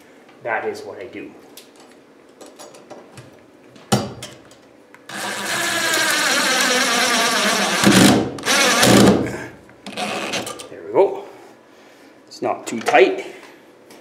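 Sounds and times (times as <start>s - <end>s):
cordless drill motor whining: 5.1s - 9.1s.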